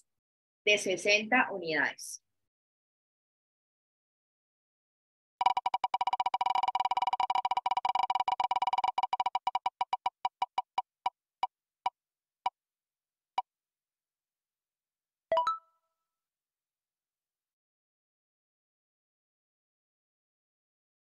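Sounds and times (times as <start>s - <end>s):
rapid electronic ticks slowing: 5.4s - 11.1s.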